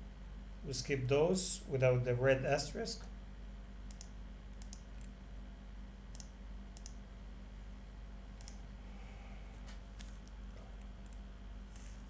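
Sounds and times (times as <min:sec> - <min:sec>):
computer mouse clicking: 0:03.9 - 0:05.2, 0:06.1 - 0:07.0, 0:08.4 - 0:08.6, 0:10.0 - 0:11.2.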